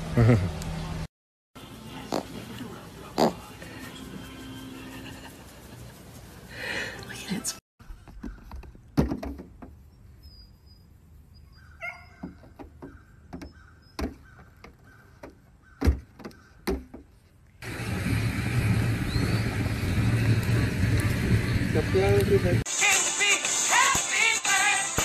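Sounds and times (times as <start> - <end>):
loud steady rushing noise: 17.6 - 22.6.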